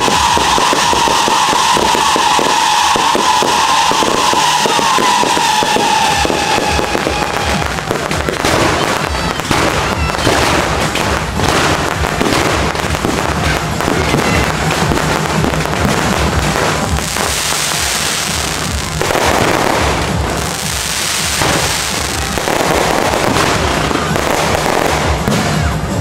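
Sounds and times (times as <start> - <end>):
firework whistle falling in pitch: 0.0 - 10.6
fireworks pops and bangs: 0.0 - 26.0.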